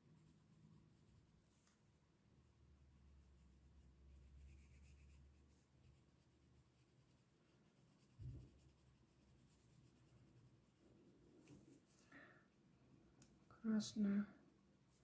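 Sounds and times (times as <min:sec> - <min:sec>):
crayon scratching on paper: 0:03.2 - 0:10.8
soft low thump: 0:08.2 - 0:08.6.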